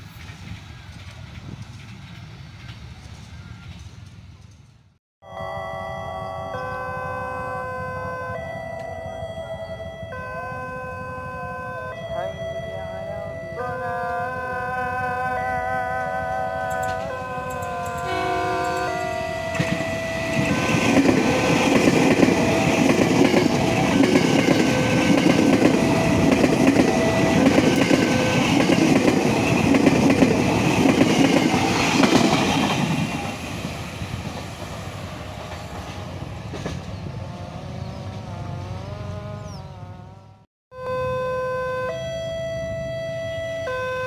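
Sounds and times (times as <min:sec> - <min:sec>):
train wheels rumbling over rails: 0:00.0 - 0:04.9, 0:16.7 - 0:38.9.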